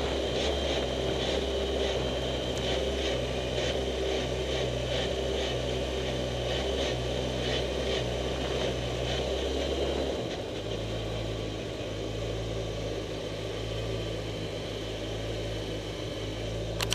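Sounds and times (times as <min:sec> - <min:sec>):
car engine idling: 0:10.4 - 0:16.9.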